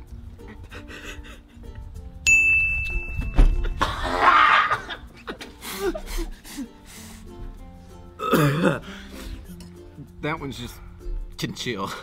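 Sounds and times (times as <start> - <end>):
background music: 0.0 - 12.0
high steady tone: 2.2 - 3.6
man retching: 3.8 - 5.5, 8.2 - 9.0.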